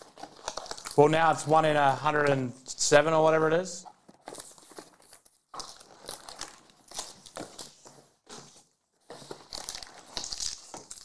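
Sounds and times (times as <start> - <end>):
rustling and scraping cardboard: 3.8 - 11.0.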